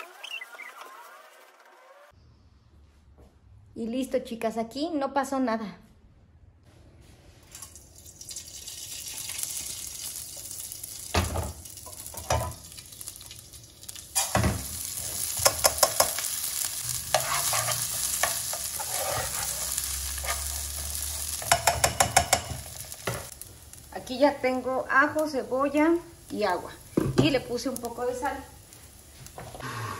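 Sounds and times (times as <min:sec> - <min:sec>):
rice sizzling in hot oil: 0:07.5 - 0:29.6
spoon stirring and scraping: 0:16.9 - 0:23.3.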